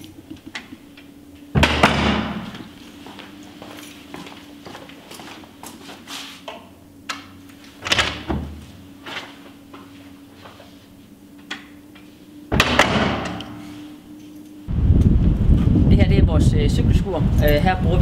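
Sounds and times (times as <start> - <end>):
door clunking open: 0.0 - 2.8, 7.8 - 8.7
door banging shut: 1.5 - 2.6, 12.5 - 13.4
footsteps on a tiled floor: 2.4 - 6.6, 8.6 - 11.1.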